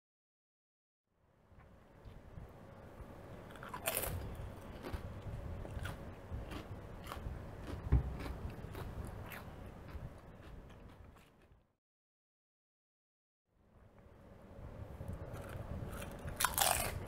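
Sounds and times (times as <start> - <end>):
potato chips crunching: 3.5 - 11.6, 15.3 - 17.0.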